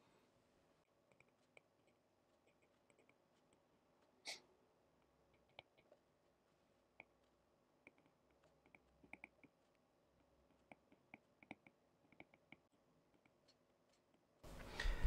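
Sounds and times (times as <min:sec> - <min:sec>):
stylus tapping on tablet screen: 0:06.9 - 0:14.0.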